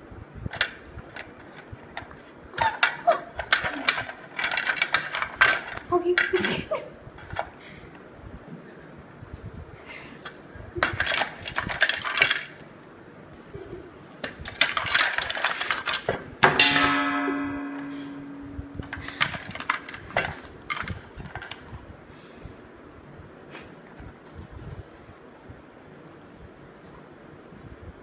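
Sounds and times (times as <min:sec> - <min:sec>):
sharp ringing clang: 0:16.4 - 0:20.1.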